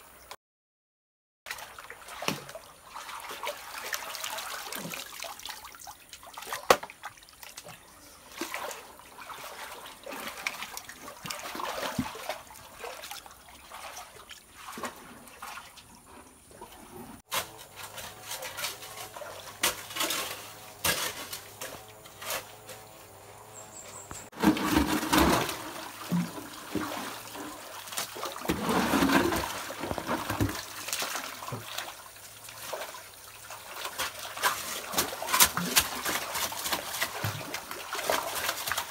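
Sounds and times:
water sloshing and splashing: 1.5s - 23.2s, 24.2s - 38.9s
knocks and scrapes: 16.1s - 30.7s
hoe digging gravel: 16.9s - 31.0s.

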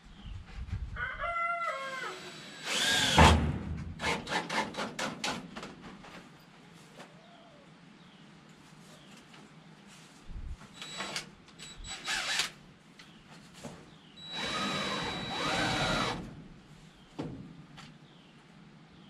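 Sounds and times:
cordless drill whining: 2.2s - 3.2s, 10.8s - 12.5s, 14.2s - 16.2s.

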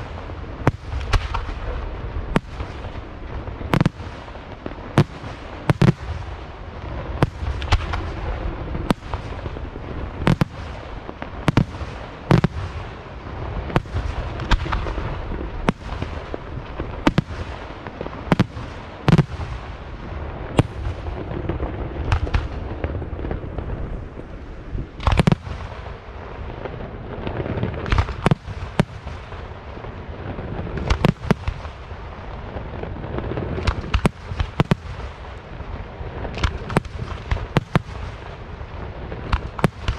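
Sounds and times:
firework crackle and rumble: 0.0s - 39.9s.

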